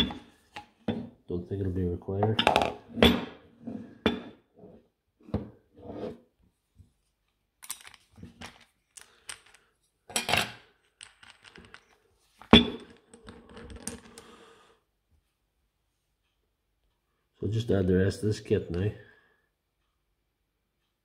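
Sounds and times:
metal parts clinking: 7.6 - 14.2.

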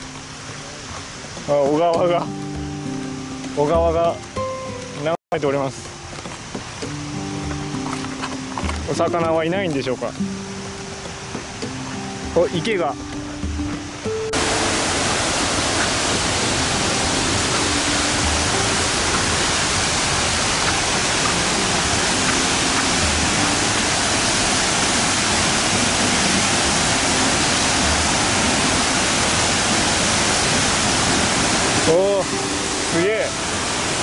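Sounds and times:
waterfall rushing: 0.0 - 34.0.

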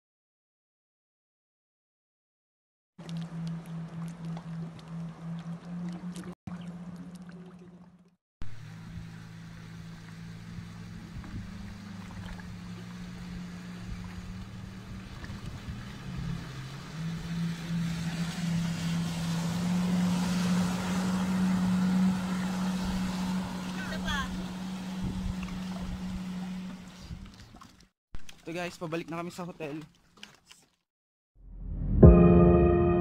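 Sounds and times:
motorboat engine running: 3.0 - 27.9
water rushing past hull: 3.0 - 28.7.

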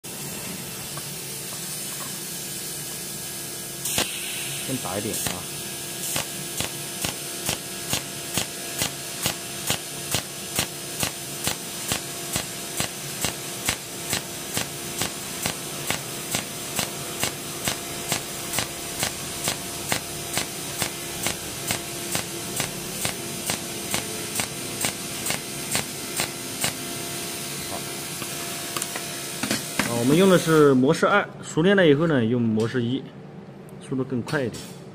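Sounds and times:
welding arc snapping: 3.8 - 26.9.

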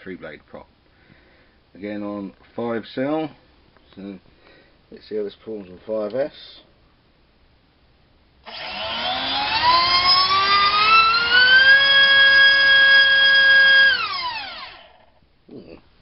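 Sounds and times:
electric motor and propeller whine: 8.5 - 15.2.

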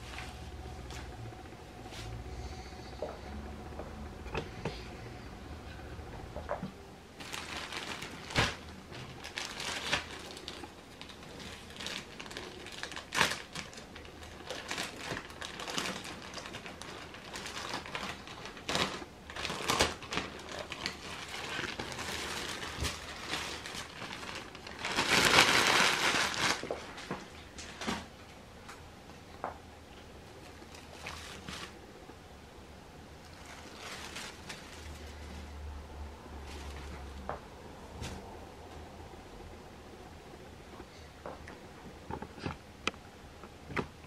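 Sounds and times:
plastic bag crinkling: 7.2 - 28.1, 30.4 - 31.8, 33.2 - 35.6, 36.3 - 37.3.

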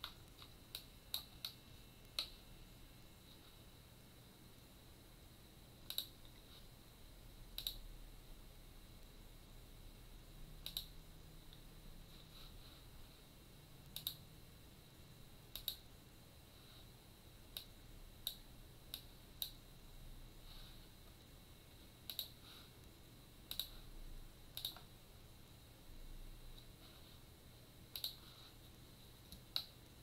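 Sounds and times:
computer mouse clicking: 0.0 - 2.4, 5.8 - 6.5, 7.5 - 7.9, 10.6 - 11.7, 13.8 - 14.3, 15.5 - 15.9, 17.5 - 19.6, 22.0 - 23.9, 24.5 - 24.9, 27.9 - 30.0.

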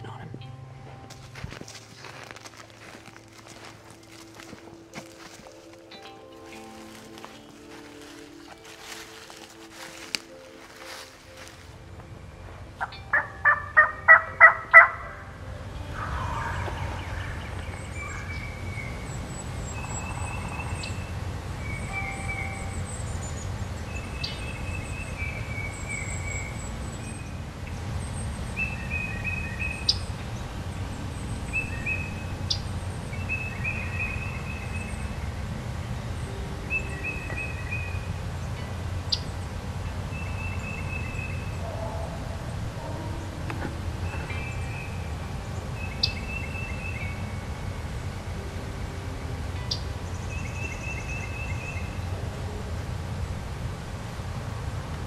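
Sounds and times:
songbirds chirping: 0.0 - 55.0
turkey gobbling: 12.8 - 18.2, 41.6 - 44.5.

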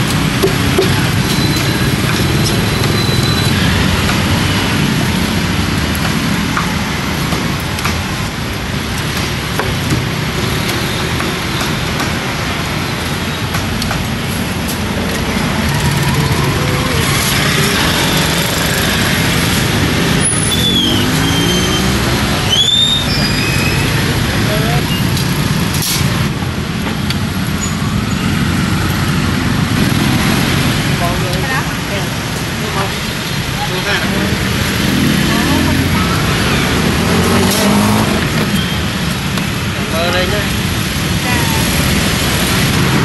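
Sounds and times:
road traffic passing: 0.0 - 43.0
short high squeals: 20.2 - 24.0.

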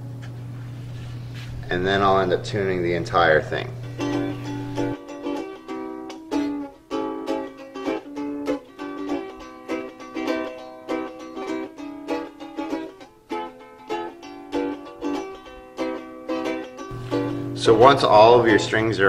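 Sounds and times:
ukulele plucked notes: 1.7 - 19.0.

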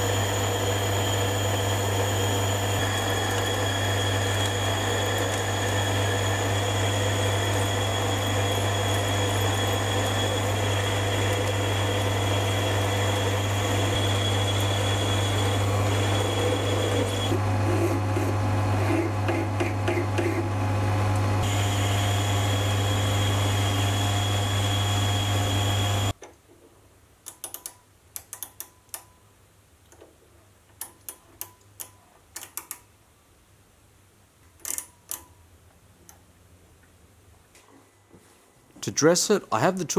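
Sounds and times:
metal lathe running: 0.0 - 17.4, 21.4 - 26.1
file stroking spinning metal: 0.2 - 19.2.

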